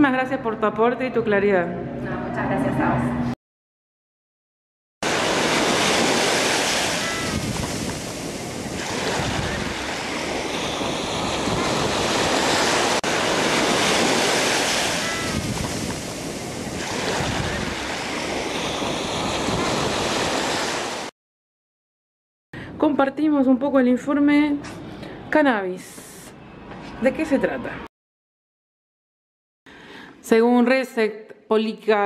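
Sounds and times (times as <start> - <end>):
sea surf breaking on beach: 5.0 - 21.1.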